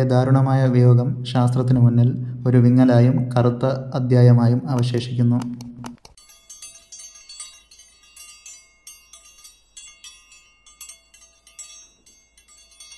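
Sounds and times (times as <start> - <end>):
tinkling chimes: 6.1 - 12.9.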